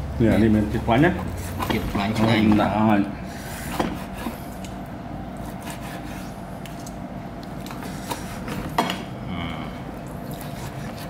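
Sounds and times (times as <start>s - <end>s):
low background hum: 0.0s - 11.0s
dishes clicking and knocking: 8.5s - 9.1s.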